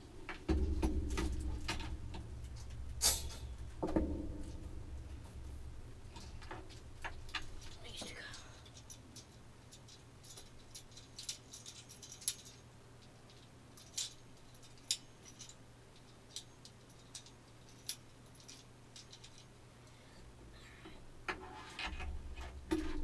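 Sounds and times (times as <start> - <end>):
small hard parts clicking and rattling: 0.0 - 23.0.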